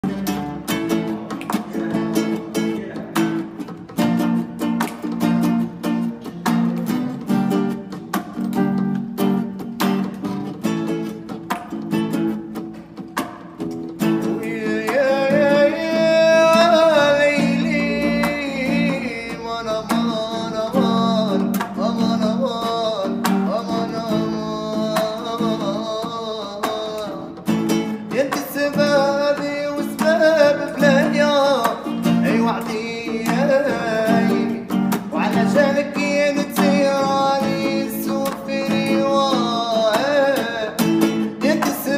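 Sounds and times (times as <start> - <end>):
man singing: 0.0 - 3.7, 14.2 - 41.9
plucked acoustic guitar: 0.0 - 41.9.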